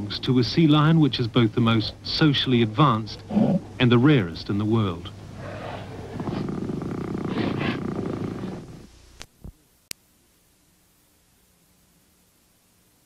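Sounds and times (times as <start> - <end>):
faint tape hiss: 0.0 - 13.0
sea lion low pulsing rumble: 5.2 - 8.9.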